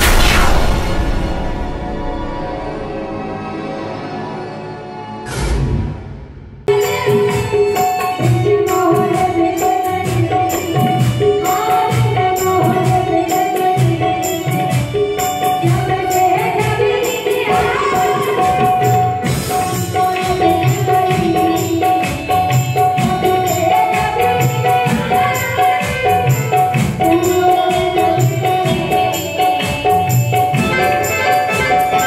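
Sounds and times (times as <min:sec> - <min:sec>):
percussion beat: 0:06.7 - 0:32.0.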